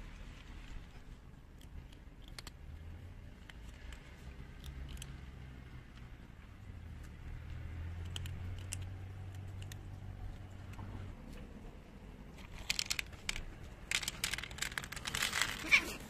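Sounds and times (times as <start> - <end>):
kittens chewing dry food: 0.1 - 16.0
paper crinkling: 12.4 - 16.0.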